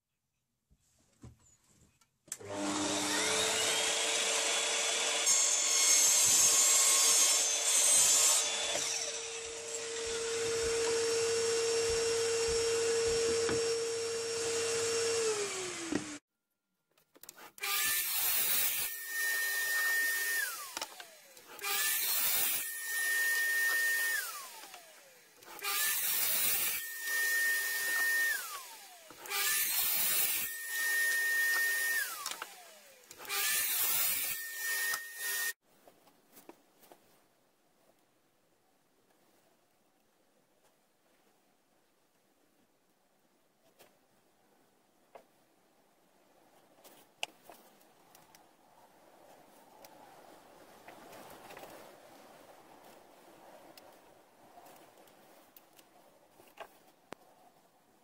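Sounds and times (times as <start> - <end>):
mitre saw cutting: 2.4 - 16.2, 17.2 - 35.6.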